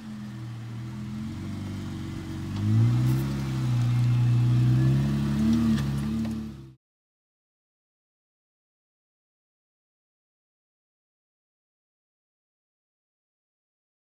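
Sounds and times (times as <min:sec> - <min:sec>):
engine accelerating: 0:00.0 - 0:06.8.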